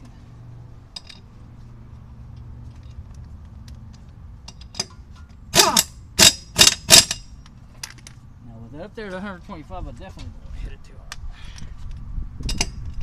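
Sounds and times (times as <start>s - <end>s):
impact wrench bursts: 5.5s - 7.3s.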